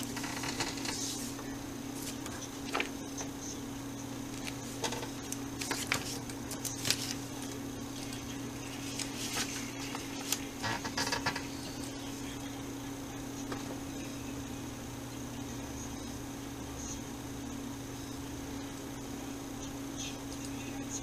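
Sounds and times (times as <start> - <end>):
low electrical hum: 0.0 - 21.0
papers rustling: 0.1 - 3.0, 4.3 - 12.0.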